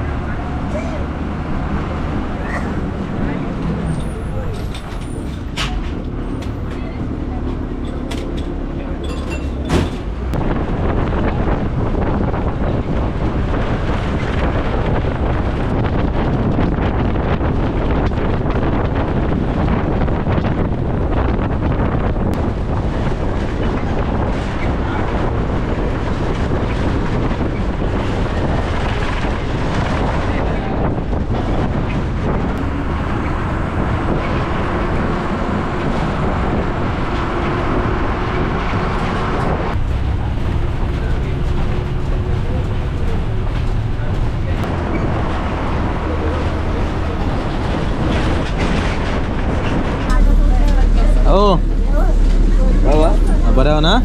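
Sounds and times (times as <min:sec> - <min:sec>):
bus engine and road noise: 0:00.0 - 0:54.0
wind buffeting microphone: 0:00.0 - 0:54.0.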